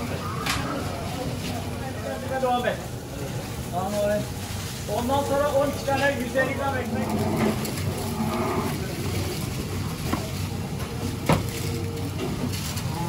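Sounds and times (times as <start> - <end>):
busy kitchen background: 0.0 - 13.0.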